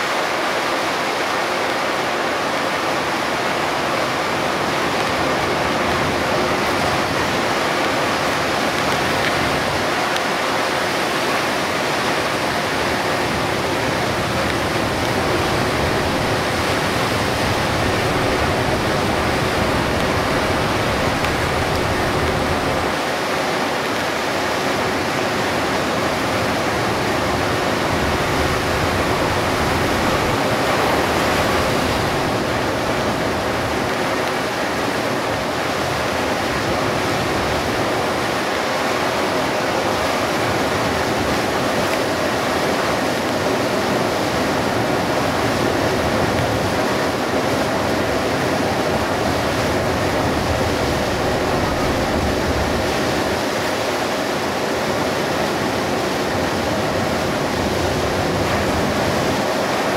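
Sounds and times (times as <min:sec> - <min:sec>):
heavy rain on a bus: 0:00.0 - 0:59.9
wet road spray: 0:00.1 - 0:55.0.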